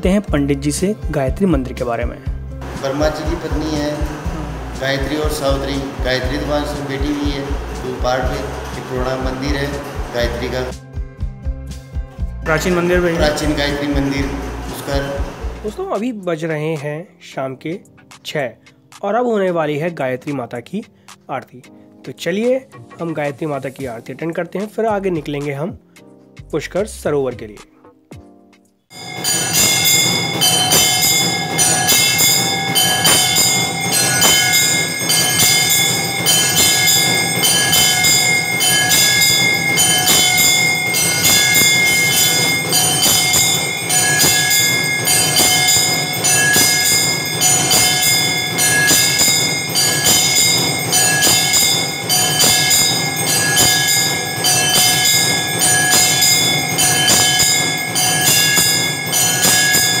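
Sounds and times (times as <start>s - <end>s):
bells and gongs clanging: 2.2s - 10.8s, 12.5s - 15.9s, 28.9s - 60.0s
bell tones ringing: 2.6s - 10.7s, 12.5s - 15.8s, 28.9s - 60.0s.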